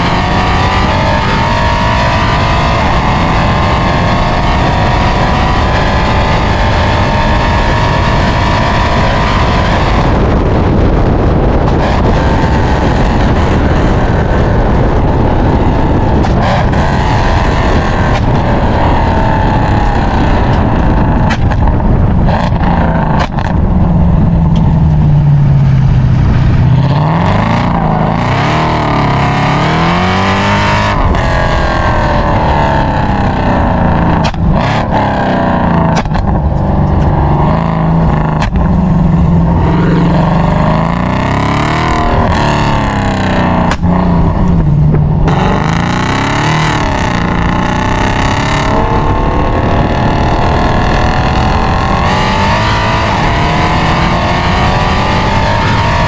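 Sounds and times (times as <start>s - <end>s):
car engine revving: 0.0s - 56.0s
sharp exhaust pops: 16.1s - 16.8s, 19.8s - 23.7s, 34.0s - 35.0s, 35.8s - 37.5s, 38.1s - 38.8s, 42.8s - 45.6s.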